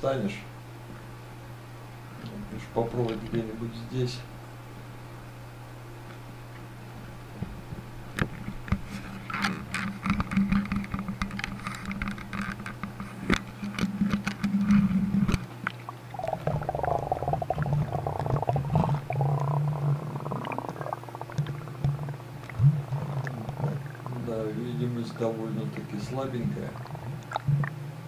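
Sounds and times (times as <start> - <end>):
muffled underwater current rushing: 15.9 - 27.8.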